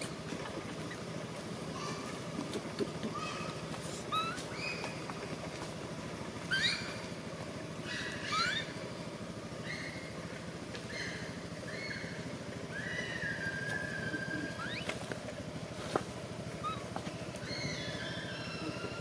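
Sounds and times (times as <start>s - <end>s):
baby monkey crying: 4.1s - 4.8s, 6.5s - 7.0s, 7.8s - 8.8s, 12.7s - 15.0s, 16.6s - 19.0s.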